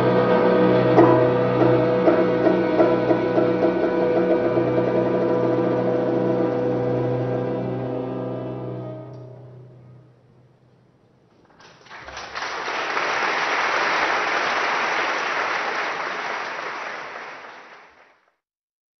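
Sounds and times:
audience applauding: 0:11.4 - 0:18.4.

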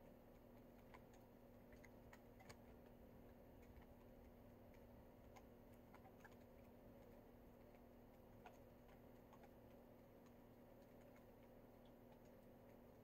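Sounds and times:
faint irregular clicks: 0:00.0 - 0:13.0
faint steady hum: 0:00.0 - 0:13.0.

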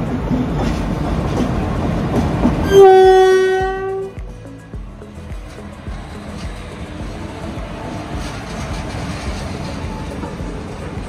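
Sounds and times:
train rumbling: 0:00.0 - 0:11.0
locomotive horn blast: 0:02.6 - 0:04.2.

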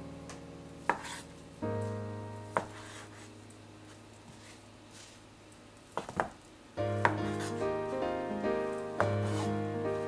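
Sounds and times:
background music: 0:00.0 - 0:03.4, 0:06.8 - 0:10.0
knife cutting on cutting board: 0:00.9 - 0:01.3, 0:02.6 - 0:03.3, 0:09.0 - 0:09.5.

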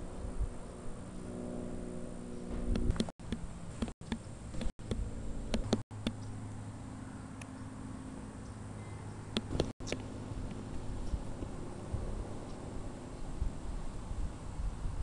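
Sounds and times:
low mechanical hum: 0:00.0 - 0:15.0
sharp clicks: 0:02.7 - 0:06.3, 0:09.3 - 0:10.6.

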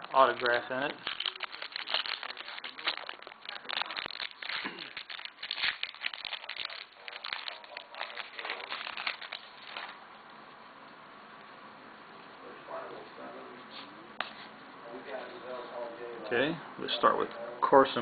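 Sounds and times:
plastic wrapper crinkling and tearing: 0:00.0 - 0:10.0.

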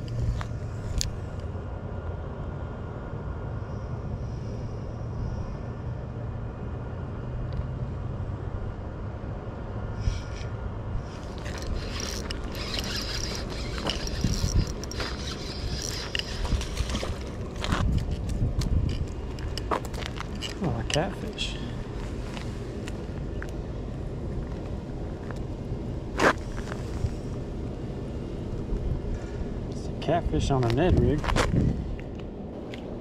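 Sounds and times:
steady low rumble: 0:00.0 - 0:33.0
fishing reel gears whirring and clicking: 0:10.0 - 0:18.1.

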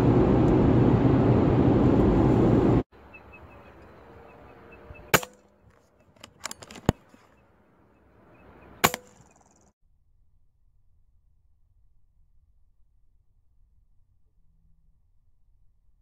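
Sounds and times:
car cabin road noise: 0:00.0 - 0:05.2
air rifle shot: 0:05.0 - 0:05.4, 0:08.8 - 0:09.7.

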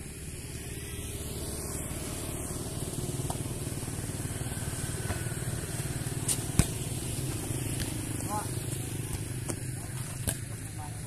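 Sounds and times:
foot kicking ball thump: 0:05.8 - 0:07.9.

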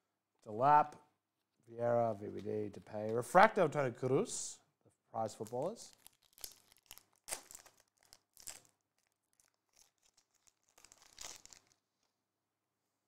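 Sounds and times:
foil pack tearing and crinkling: 0:05.5 - 0:11.9.

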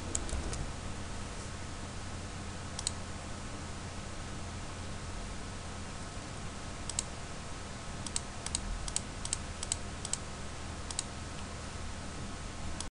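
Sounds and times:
computer mouse clicks: 0:00.0 - 0:00.6, 0:02.8 - 0:03.0, 0:06.9 - 0:07.1, 0:08.0 - 0:10.2, 0:10.9 - 0:11.1
low electrical hum: 0:00.0 - 0:12.9.

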